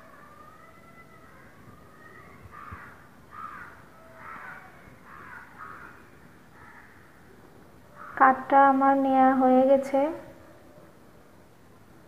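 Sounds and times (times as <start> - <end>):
crows cawing: 2.5 - 7.3, 7.9 - 8.2.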